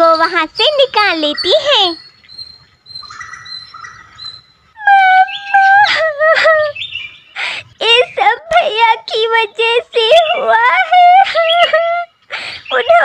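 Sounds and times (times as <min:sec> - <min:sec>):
child speaking: 0:00.0 - 0:02.0, 0:04.8 - 0:06.2, 0:07.7 - 0:12.1, 0:12.7 - 0:13.0
cartoon child voice wailing: 0:04.8 - 0:06.7, 0:07.8 - 0:12.0
child sobbing: 0:04.8 - 0:06.8, 0:09.9 - 0:13.0.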